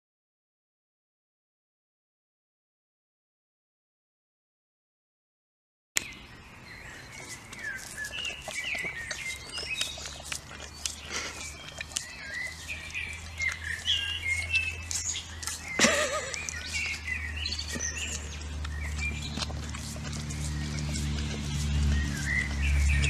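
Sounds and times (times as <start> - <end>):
small birds chirping: 6.0 - 23.0.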